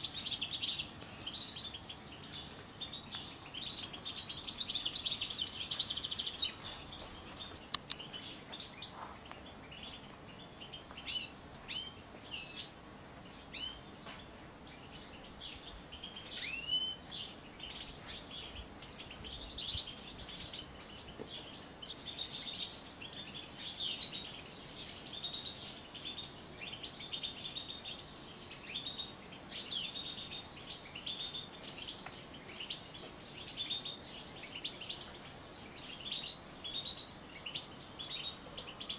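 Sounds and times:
goldfinches twittering and singing: 14.7s - 38.9s.

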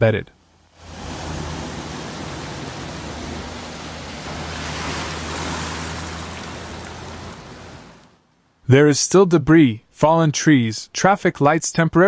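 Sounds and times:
floodwater rushing: 0.5s - 8.2s.

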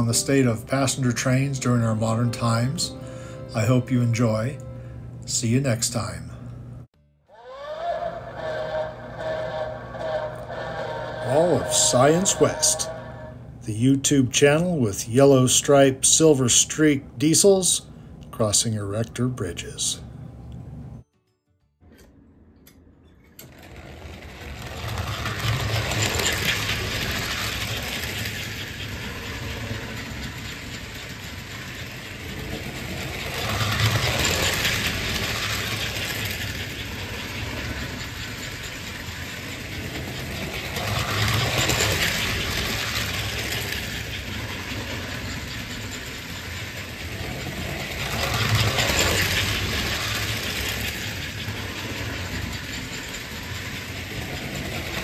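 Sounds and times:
model train wheel clatter: 0.0s - 2.9s, 9.3s - 16.8s, 23.3s - 55.0s
model train motor hum: 7.4s - 19.9s, 23.4s - 55.0s.

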